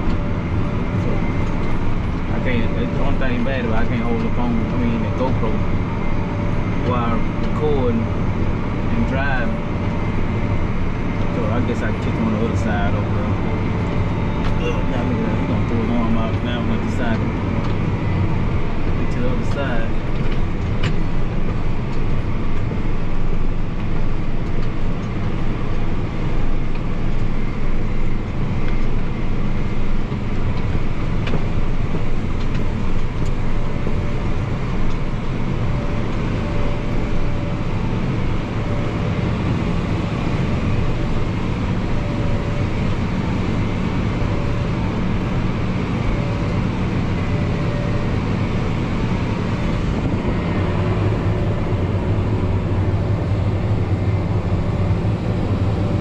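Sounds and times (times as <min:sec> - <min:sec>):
faint whine: 0:00.0 - 0:56.0
tractor engine from inside cab: 0:00.0 - 0:56.0.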